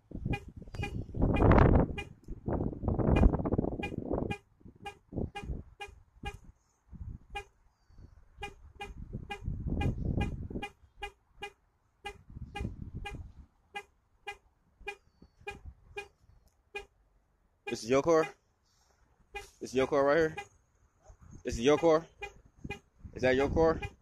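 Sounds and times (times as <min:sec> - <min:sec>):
car alarm horn honking: 0:00.3 - 0:02.2, 0:03.1 - 0:06.4, 0:08.4 - 0:16.1, 0:19.3 - 0:20.6, 0:21.6 - 0:24.0.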